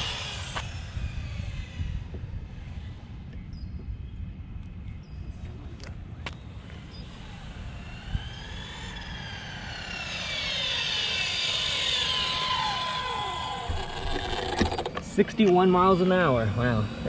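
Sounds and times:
toy truck motor whining: 0.0s - 2.2s, 6.7s - 17.0s.

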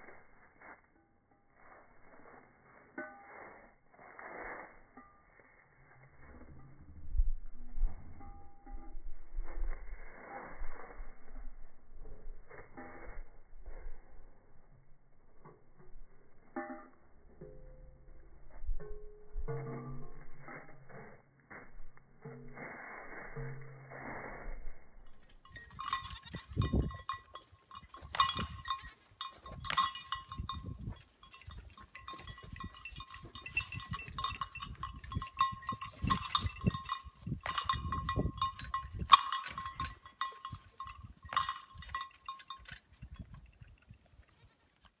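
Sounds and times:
goat bell clanking: 0.6s - 7.1s, 7.8s - 9.5s, 15.2s - 21.7s, 25.1s - 44.9s.

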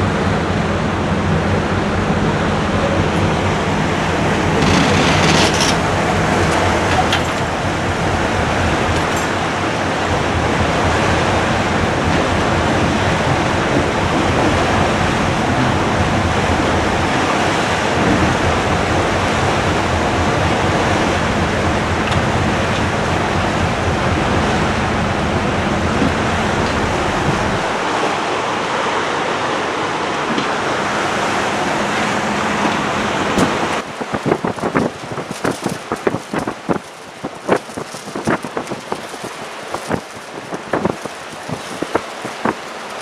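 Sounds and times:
wind on microphone: 0.0s - 28.0s, 30.9s - 43.0s
low hum: 0.0s - 28.2s
water rushing past ship hull: 0.0s - 43.0s.

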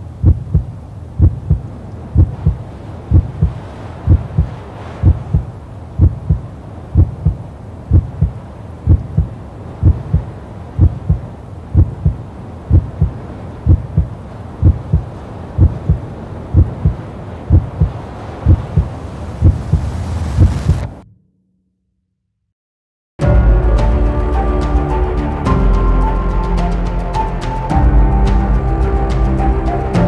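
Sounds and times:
low heartbeat-like double thump: 0.2s - 1.6s, 2.2s - 6.4s, 7.0s - 8.3s, 8.9s - 11.2s, 11.8s - 13.1s, 13.7s - 15.0s, 15.6s - 16.0s, 16.6s - 19.8s.

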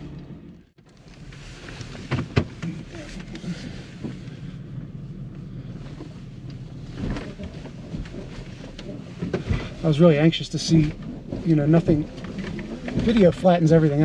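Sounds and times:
truck knocks and rattles: 6.8s - 14.0s.

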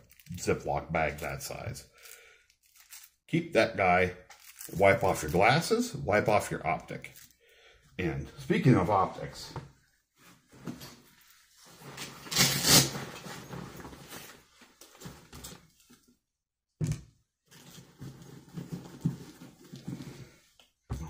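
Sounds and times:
fabric bag rustling: 10.2s - 16.0s.

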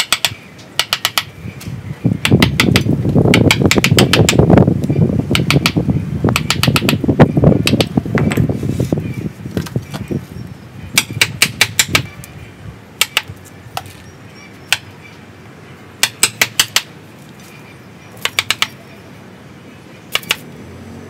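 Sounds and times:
wood chisel clicking into wood: 0.0s - 1.3s, 2.2s - 4.4s, 5.3s - 7.0s, 7.6s - 7.9s, 11.0s - 12.1s, 13.0s - 13.3s, 16.0s - 16.9s, 18.2s - 18.8s, 20.1s - 20.4s.

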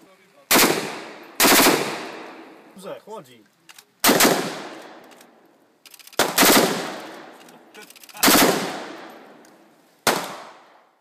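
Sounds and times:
rifle firing rapid shots: 0.5s - 2.4s, 4.0s - 5.0s, 6.2s - 7.3s, 8.2s - 9.1s
gunshot echo: 4.0s - 5.0s, 6.2s - 7.3s, 8.2s - 9.3s, 10.1s - 10.9s.

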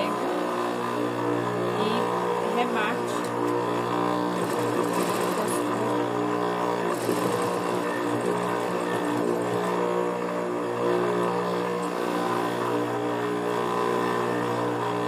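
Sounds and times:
sewing machine motor humming: 0.0s - 15.0s.

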